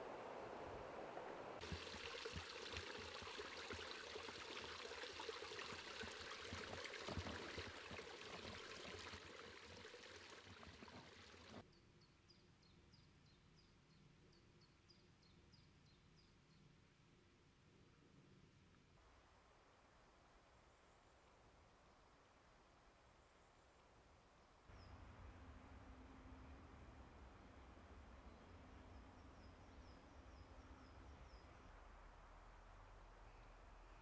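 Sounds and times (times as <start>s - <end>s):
stream running over rocks: 1.2s - 11.6s.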